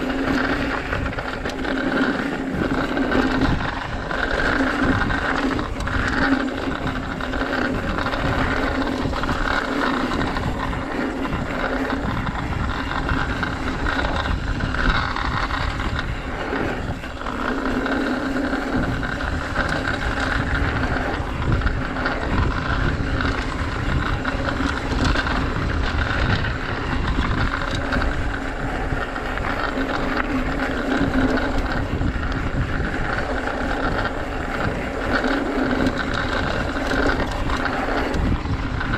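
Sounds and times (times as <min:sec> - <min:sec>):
bike rattles and knocks: 0:00.0 - 0:38.9
tyre and wind noise: 0:00.0 - 0:38.9.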